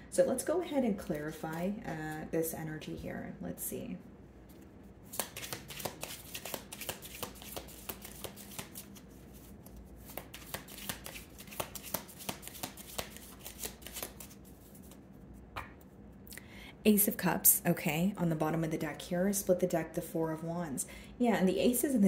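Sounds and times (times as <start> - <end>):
cards being shuffled: 4.5 - 16.0.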